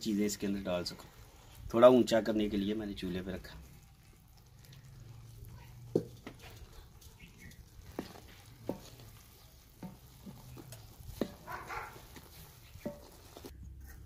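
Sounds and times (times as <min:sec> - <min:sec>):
spatula scraping pan: 0:00.0 - 0:14.0
wooden spatula stirring syrup: 0:00.0 - 0:14.0
spatula knocking against metal pan: 0:09.8 - 0:13.2.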